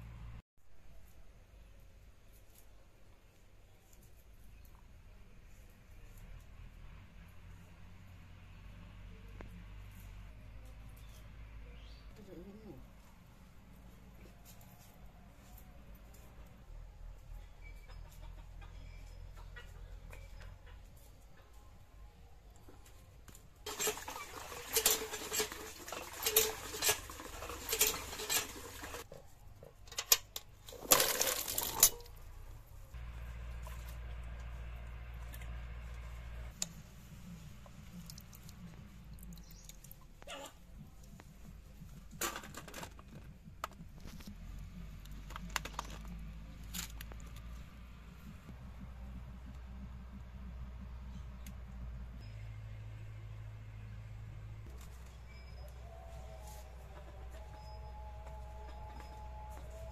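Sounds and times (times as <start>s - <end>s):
water gushing into metal bucket: 23.7s - 29.0s
low steady hum: 27.4s - 59.9s
vegetables clattering off metal plate: 30.6s - 32.1s.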